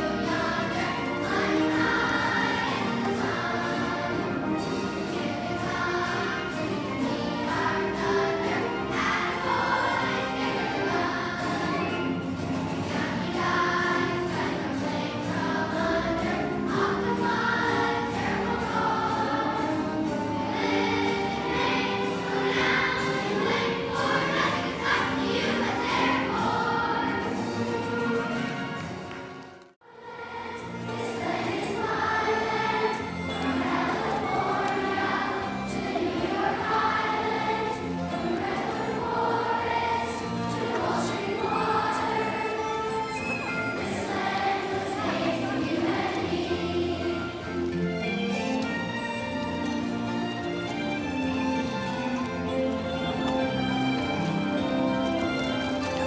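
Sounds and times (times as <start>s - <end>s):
children's choir singing: 0.0s - 56.0s.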